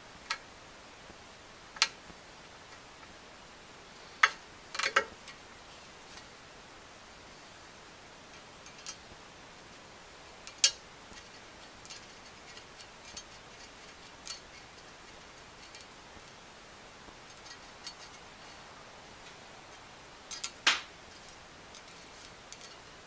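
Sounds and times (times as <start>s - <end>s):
small metallic clicks: 8.3s - 9.0s, 10.4s - 16.4s, 19.2s - 22.9s.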